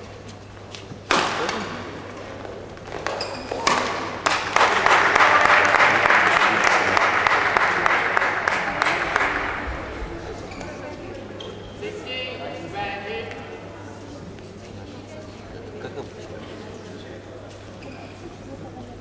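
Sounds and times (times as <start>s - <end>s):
racket hitting shuttlecock: 1.0s - 4.8s.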